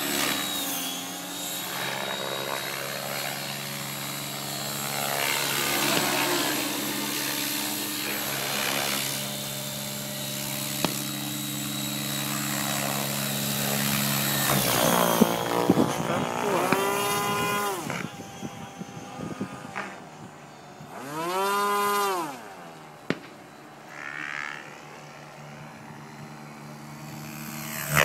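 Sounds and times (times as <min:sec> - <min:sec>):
electric motor whine: 0:00.0 - 0:28.0
helicopter rotor drone: 0:00.0 - 0:28.0.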